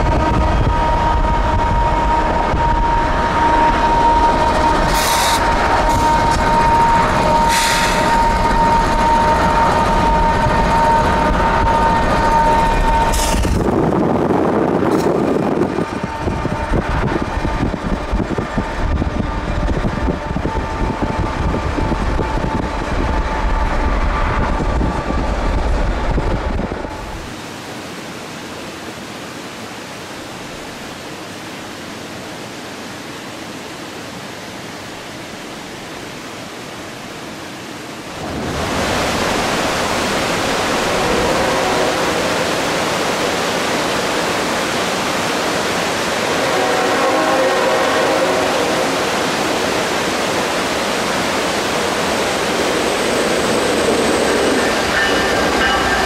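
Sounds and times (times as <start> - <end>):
locomotive engine running: 0.0 - 27.3
wind rumble: 0.0 - 27.4, 38.0 - 56.0
loud rushing hiss: 4.6 - 10.0
soft outdoor hiss by water: 26.9 - 56.0.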